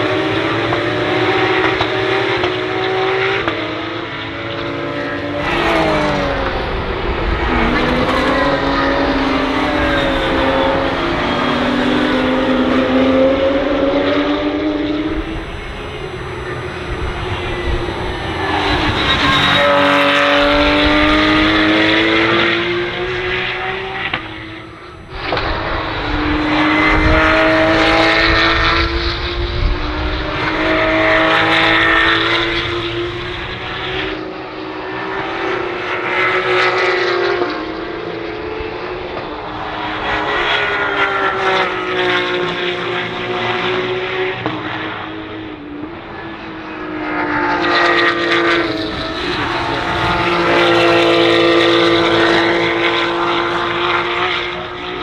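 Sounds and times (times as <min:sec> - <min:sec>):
race car engines at full throttle: 0:00.0 - 0:55.0.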